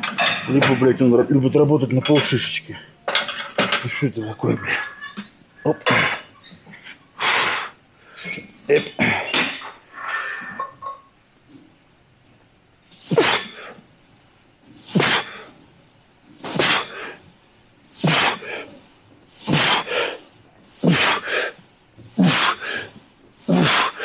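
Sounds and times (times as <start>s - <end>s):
man breathing forcefully: 7.2s - 8.2s, 14.8s - 15.6s, 16.4s - 17.3s, 18.0s - 24.0s
man grunting: 20.8s - 21.2s, 23.4s - 24.0s.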